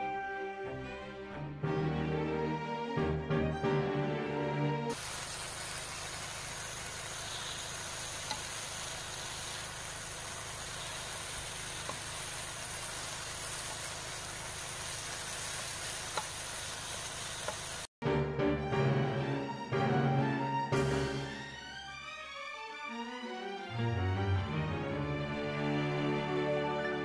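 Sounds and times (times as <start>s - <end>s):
meat sizzling in a grill pan: 4.9s - 17.9s.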